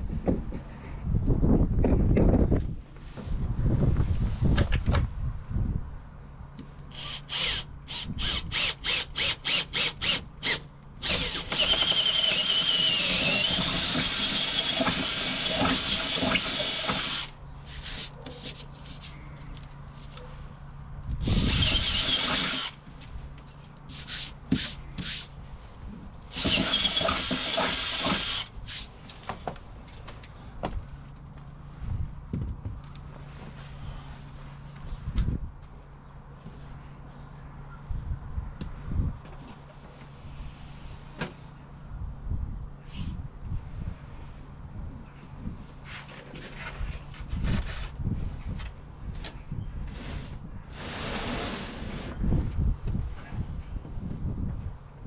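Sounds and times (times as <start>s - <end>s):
cordless drill whining: 6.9s - 17.3s, 21.2s - 22.8s, 26.3s - 28.5s
drill trigger pulses: 6.9s - 17.3s, 21.2s - 22.8s, 26.3s - 28.5s.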